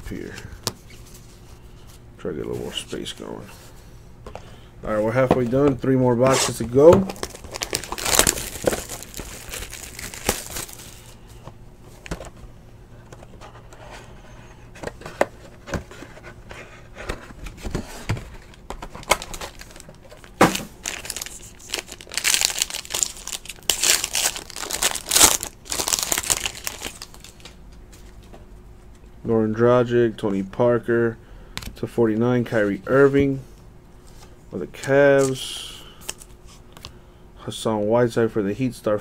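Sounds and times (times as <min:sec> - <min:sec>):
cardboard rustling: 0:05.1 - 0:11.2, 0:14.7 - 0:28.1
wrapper crinkling and tearing: 0:07.1 - 0:11.2, 0:19.0 - 0:27.6.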